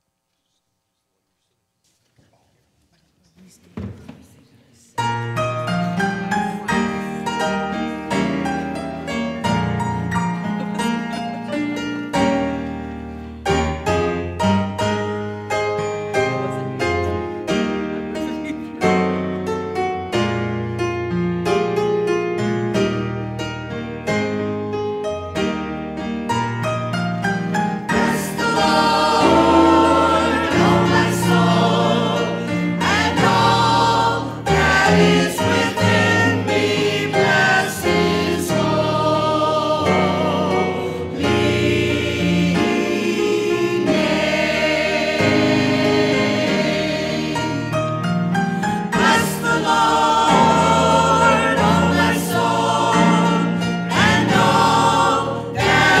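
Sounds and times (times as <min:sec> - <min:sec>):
choir singing: 0:13.5 - 0:18.0, 0:27.2 - 0:56.0.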